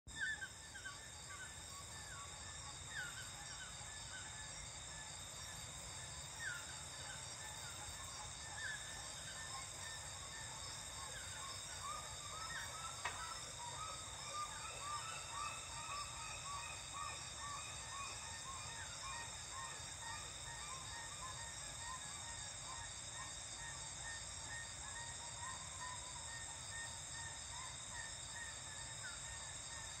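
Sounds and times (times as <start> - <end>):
high-pitched insect drone: 0.1 - 30.0.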